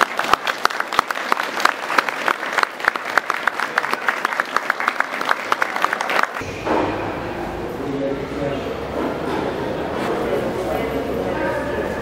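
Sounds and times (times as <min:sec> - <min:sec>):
people clapping: 0:00.0 - 0:06.4.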